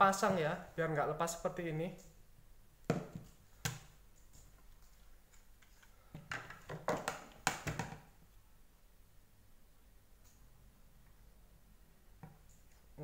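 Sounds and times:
plastic parts clicking and knocking: 0:05.7 - 0:08.1.

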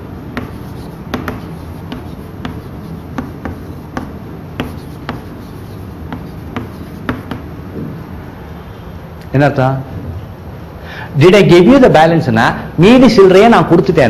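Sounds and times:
chalk tapping on chalkboard: 0:00.3 - 0:08.0.

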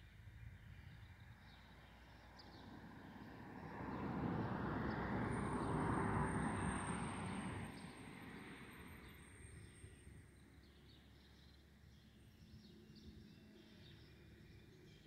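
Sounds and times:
vehicle passing by: 0:02.6 - 0:09.7.

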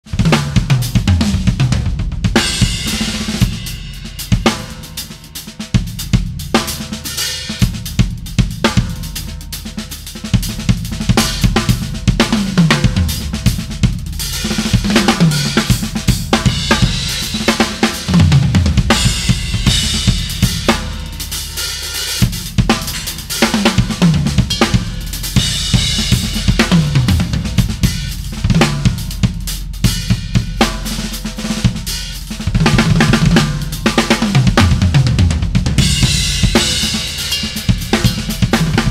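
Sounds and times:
drum kit groove: 0:00.0 - 0:38.9
tom fills: 0:11.2 - 0:29.2.

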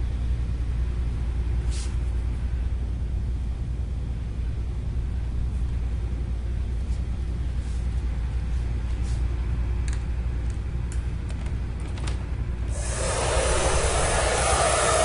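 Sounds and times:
low background rumble: 0:00.0 - 0:15.0
faint brief hisses: 0:01.7 - 0:02.0.

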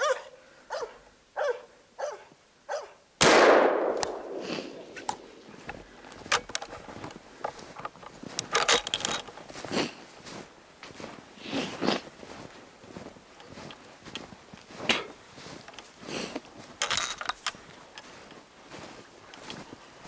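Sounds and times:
rifle shot: 0:03.2 - 0:05.5
metallic clicks: 0:07.4 - 0:09.4, 0:16.8 - 0:18.1
rustling in snow: 0:09.4 - 0:16.8, 0:17.6 - 0:20.0.

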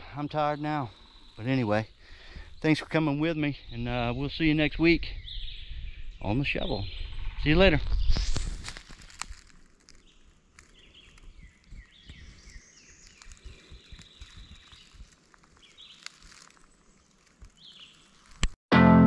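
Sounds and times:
birds chirping: 0:00.0 - 0:09.2, 0:09.8 - 0:18.4.

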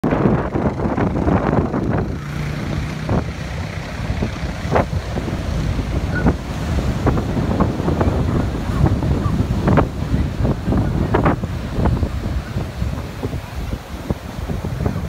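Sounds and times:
heavy surf breaking: 0:00.0 - 0:15.0
wind buffeting microphone: 0:00.0 - 0:15.0.

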